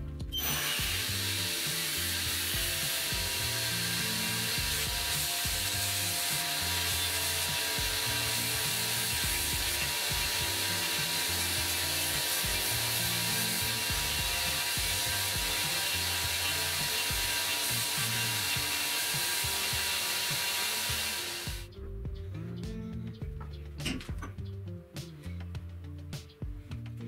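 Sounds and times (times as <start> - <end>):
belt sander sanding wood: 0.4 - 21.7.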